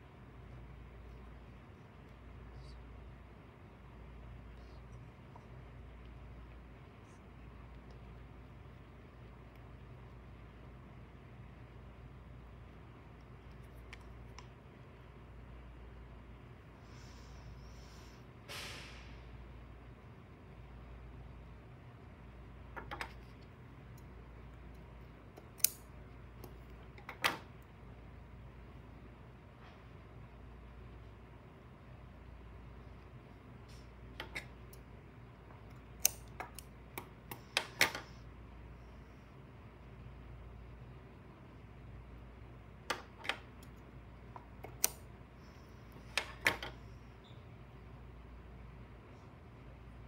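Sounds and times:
low room hum: 0.0s - 50.0s
scissors clicking: 25.4s - 25.8s, 36.0s - 37.7s, 44.6s - 45.0s.

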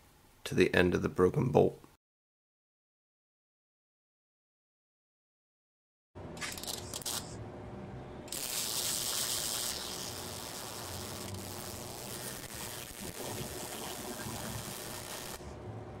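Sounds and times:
welder arc crackling and hissing: 6.4s - 7.4s, 8.3s - 15.6s.

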